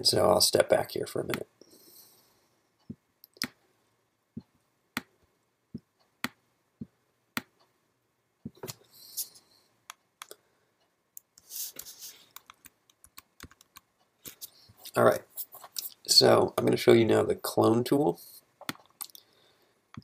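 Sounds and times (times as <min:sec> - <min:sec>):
computer mouse clicking: 0:12.3 - 0:14.4, 0:18.6 - 0:19.2.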